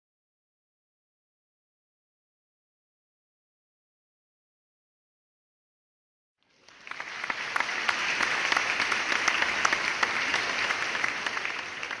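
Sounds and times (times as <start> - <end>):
crowd applause: 6.4 - 12.0.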